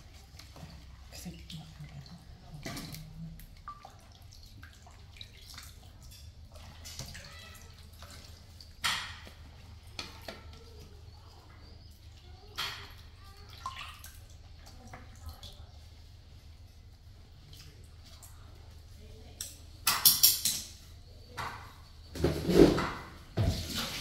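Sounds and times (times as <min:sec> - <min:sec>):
water splashing in plastic basin: 0:00.0 - 0:10.9, 0:11.6 - 0:16.1, 0:22.2 - 0:24.0.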